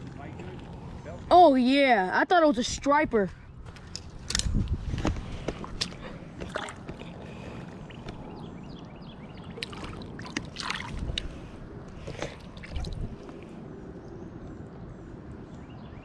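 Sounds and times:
fish splashing in water: 0:05.9 - 0:08.2, 0:09.3 - 0:13.5.

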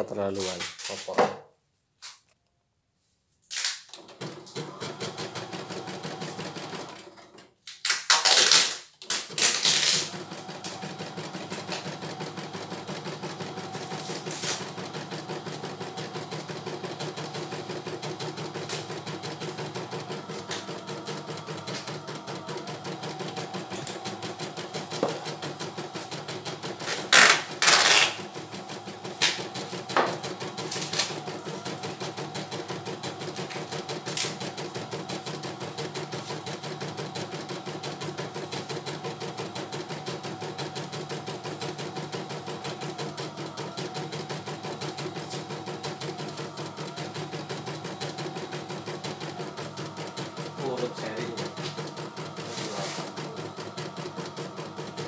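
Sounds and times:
embroidery machine needle clatter: 0:09.1 - 0:55.0.

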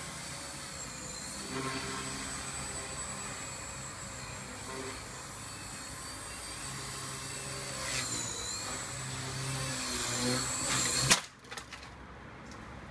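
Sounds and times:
rc helicopter whining: 0:00.0 - 0:11.2.

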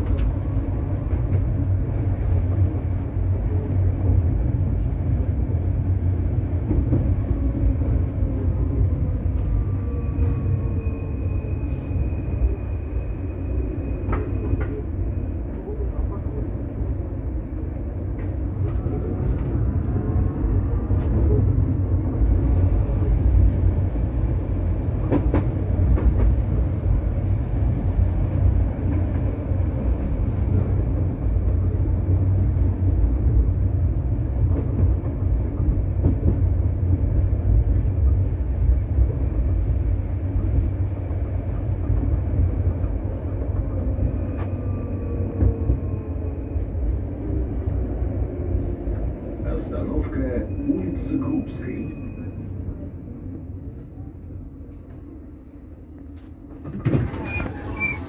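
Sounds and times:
tram wheels rumbling on rails: 0:00.0 - 0:58.0.

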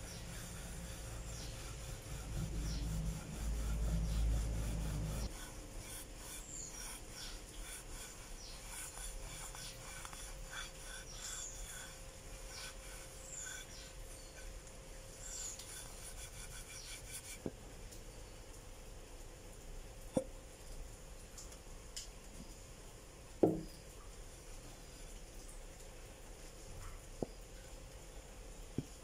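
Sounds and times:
cloth rubbing on brass plate: 0:00.0 - 0:14.5, 0:15.2 - 0:17.5.

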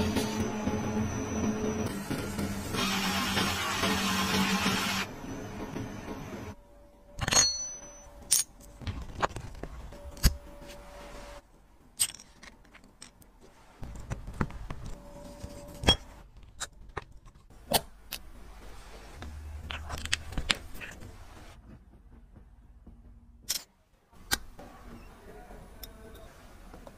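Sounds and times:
metal parts clicking and tapping: 0:11.9 - 0:13.3, 0:23.4 - 0:24.5.

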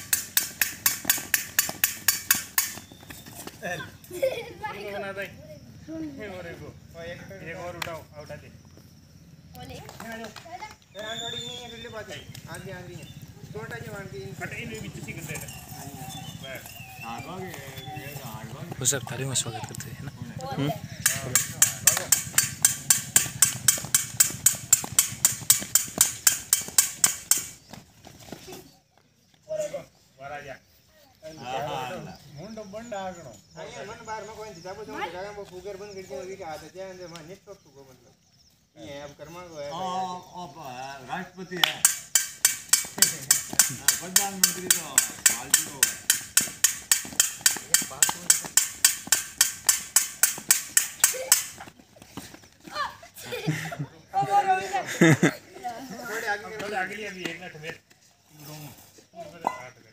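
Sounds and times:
rapid sharp strikes: 0:21.0 - 0:27.5, 0:41.8 - 0:51.6.

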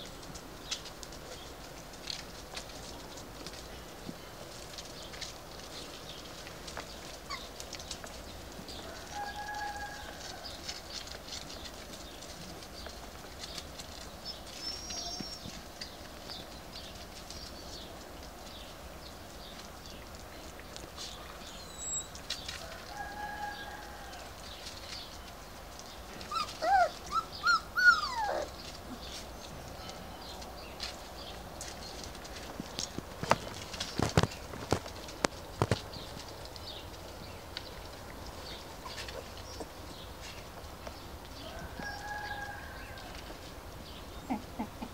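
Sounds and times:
paws pattering on leaves: 0:00.0 - 0:44.9
puppy yelps and squeals: 0:21.6 - 0:22.2, 0:26.3 - 0:28.6.

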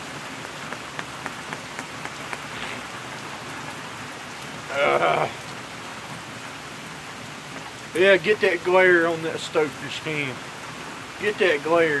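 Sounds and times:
pouring rain: 0:00.0 - 0:12.0
sharp taps: 0:00.4 - 0:02.8
man's voice: 0:08.0 - 0:10.4, 0:11.2 - 0:12.0.

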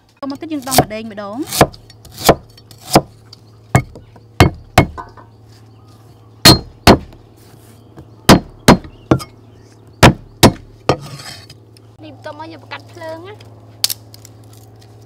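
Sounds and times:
cleaver chopping on wooden block: 0:00.6 - 0:05.1, 0:06.4 - 0:07.2, 0:08.3 - 0:09.3, 0:10.0 - 0:11.1.

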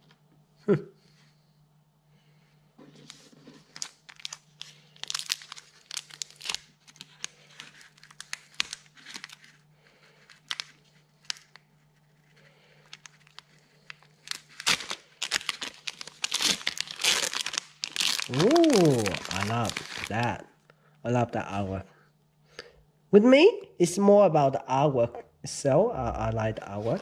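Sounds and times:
foil wrapper crinkling: 0:03.0 - 0:20.4
foil wrapper tearing open: 0:03.1 - 0:09.6, 0:10.2 - 0:20.3.

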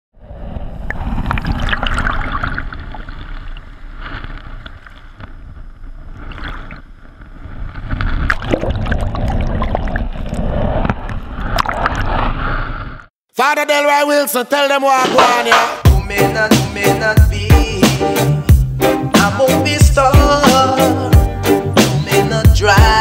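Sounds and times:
muffled water sloshing and gurgling: 0:00.2 - 0:13.1.

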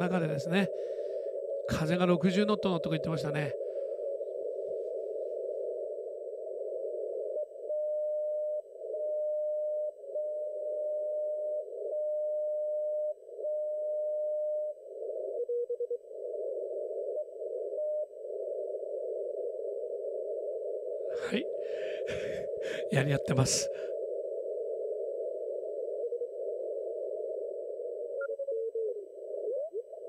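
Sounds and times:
radio band hiss: 0:00.0 - 0:04.6, 0:21.1 - 0:24.0.

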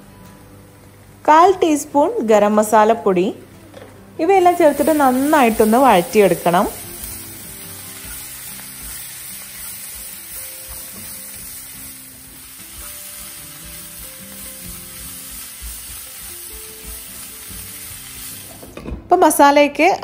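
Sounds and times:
masala sizzling: 0:00.0 - 0:19.5
soft background music: 0:00.0 - 0:20.0.

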